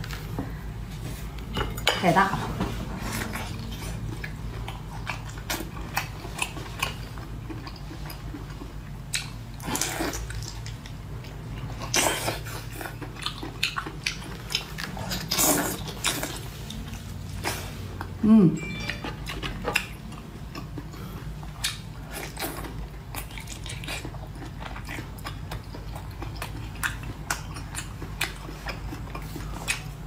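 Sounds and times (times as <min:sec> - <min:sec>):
person slurping and chewing: 0:11.8 - 0:18.0.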